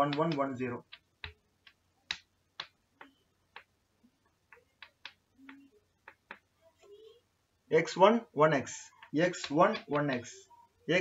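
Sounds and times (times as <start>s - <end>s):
chalk tapping on blackboard: 0.0s - 3.8s, 4.5s - 6.5s, 8.9s - 10.4s.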